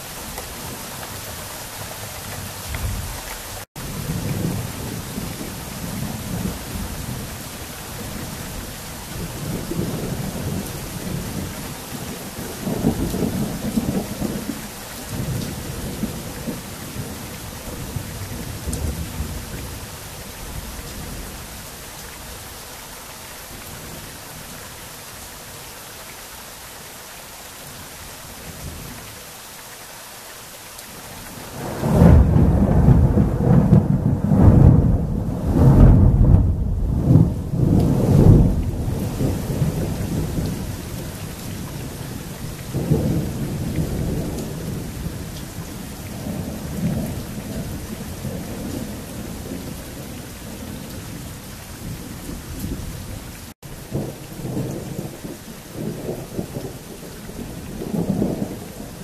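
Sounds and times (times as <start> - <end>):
steady rain: 0.0 - 59.0
rolling thunder: 31.5 - 53.1.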